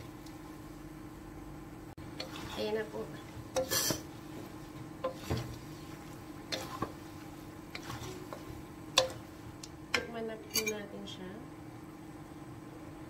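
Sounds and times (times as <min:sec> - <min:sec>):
wooden spatulas scraping a wok: 0:02.0 - 0:09.5.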